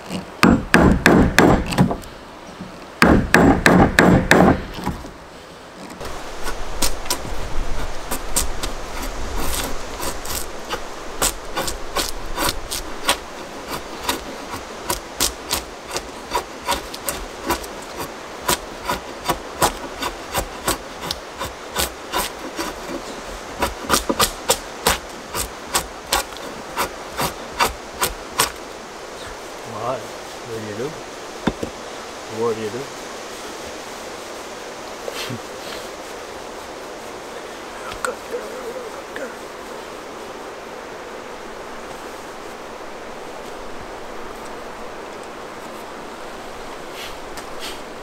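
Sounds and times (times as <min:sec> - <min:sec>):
hand tool strokes on wood: 0:05.7 - 0:28.6, 0:46.9 - 0:47.9.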